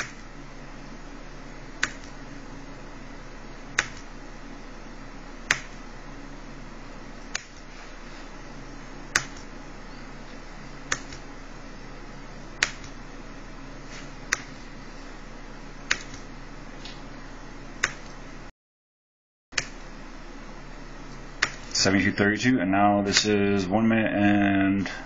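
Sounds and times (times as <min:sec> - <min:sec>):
steady low hum: 0:00.0 - 0:18.5, 0:19.6 - 0:25.0
computer mouse clicks: 0:01.8 - 0:02.2, 0:03.8 - 0:04.1, 0:05.5 - 0:05.8, 0:07.3 - 0:07.7, 0:09.1 - 0:09.5, 0:10.9 - 0:11.2, 0:12.6 - 0:13.0, 0:14.3 - 0:14.5, 0:15.9 - 0:16.3, 0:17.8 - 0:18.2, 0:19.6 - 0:19.8, 0:21.4 - 0:21.7.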